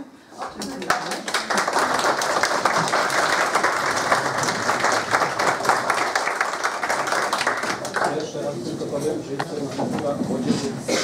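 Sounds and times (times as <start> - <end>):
crowd applauding: 0.4 - 8.4.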